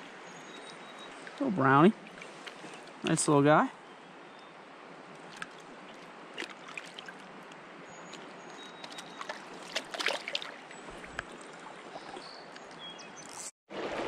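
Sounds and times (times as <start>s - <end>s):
stream water running: 0.0s - 14.0s
small water splashes: 0.6s - 3.2s, 5.1s - 12.9s, 13.7s - 14.0s.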